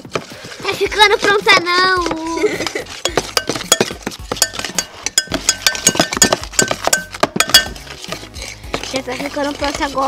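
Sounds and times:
stirring thick slime: 0:00.0 - 0:10.0
spoon clinking against glass bowl: 0:03.0 - 0:08.9.

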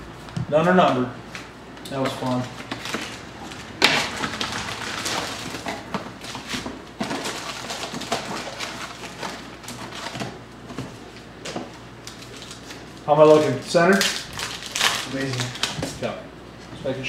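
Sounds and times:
wrappers crinkling: 0:01.9 - 0:10.4, 0:11.0 - 0:16.1.

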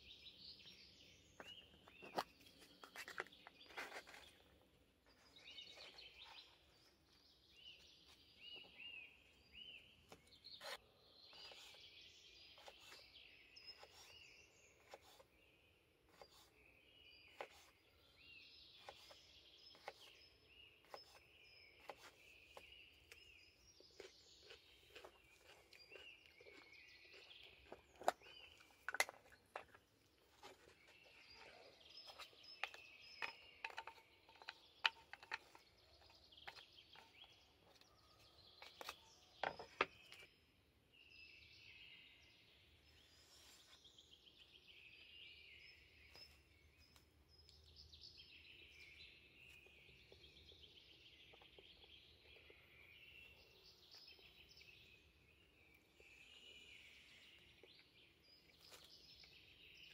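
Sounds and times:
songbirds chirping: 0:00.0 - 0:59.9.

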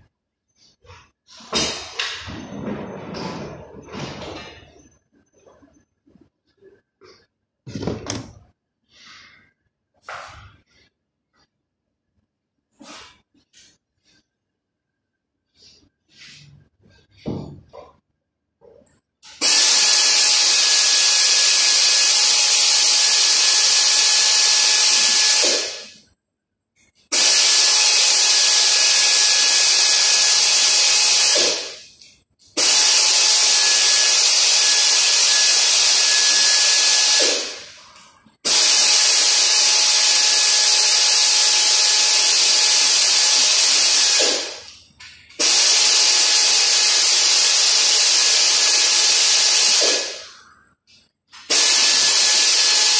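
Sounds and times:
compressed air gun hissing: 0:19.4 - 0:25.9, 0:27.1 - 0:31.8, 0:32.6 - 0:37.8, 0:38.4 - 0:44.6, 0:45.4 - 0:50.4, 0:51.5 - 0:52.9.

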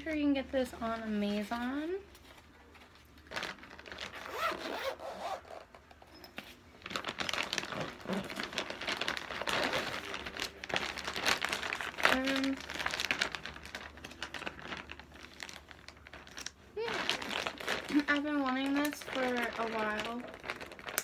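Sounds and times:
zipper rasping: 0:04.2 - 0:05.8, 0:07.6 - 0:08.5.

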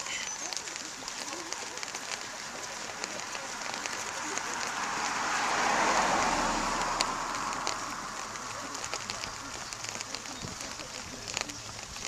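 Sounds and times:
car driving past: 0:02.7 - 0:10.2.

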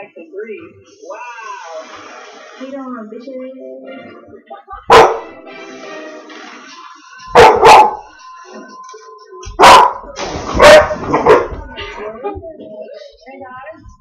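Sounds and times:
dog barking excitedly: 0:04.9 - 0:05.2, 0:07.4 - 0:08.0, 0:09.6 - 0:11.6.

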